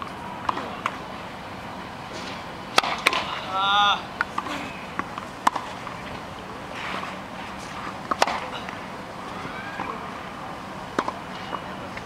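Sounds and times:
tennis ball struck by racket: 2.1s - 3.4s, 4.2s - 6.0s, 6.8s - 8.5s, 11.0s - 11.5s.

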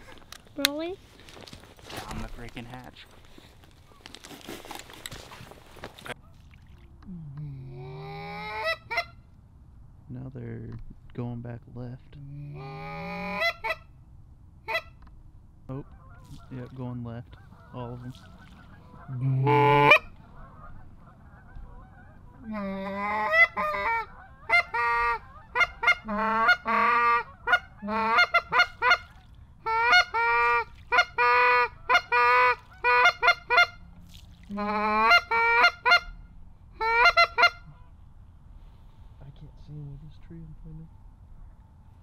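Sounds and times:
geese honking: 7.9s - 9.2s, 12.6s - 13.9s, 15.7s - 33.9s, 34.5s - 38.0s.

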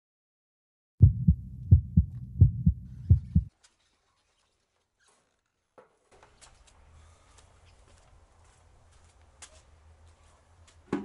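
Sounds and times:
heartbeat double beats: 1.0s - 3.5s.

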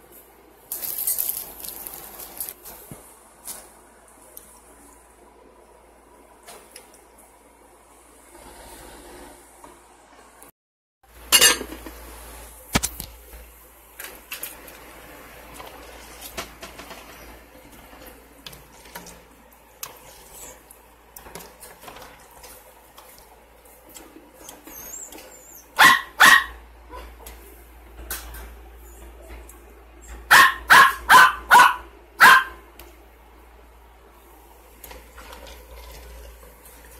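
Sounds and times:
dog barking: 25.8s - 27.1s, 30.3s - 32.6s.

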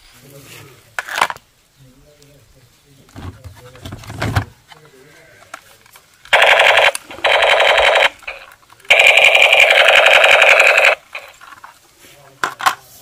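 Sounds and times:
toy machine gun buzzing rattle: 6.3s - 11.4s.

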